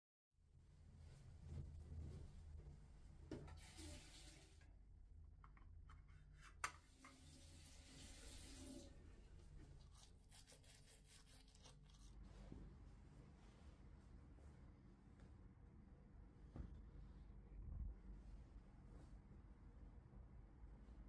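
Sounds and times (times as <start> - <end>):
faint tap running: 6.6 - 9.0.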